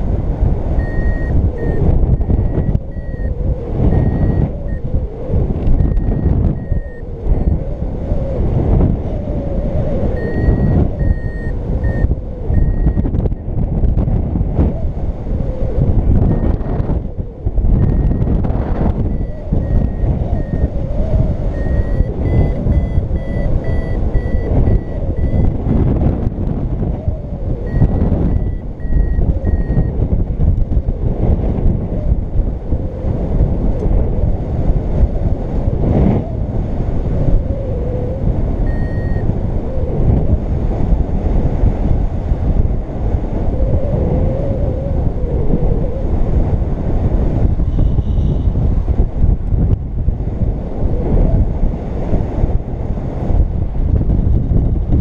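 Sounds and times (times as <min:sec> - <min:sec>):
wind buffeting microphone: 0:00.0 - 0:55.0
variometer electronic beeps: 0:00.7 - 0:07.7, 0:09.9 - 0:13.6, 0:16.2 - 0:16.9, 0:17.8 - 0:25.6, 0:27.5 - 0:30.0, 0:38.6 - 0:39.3.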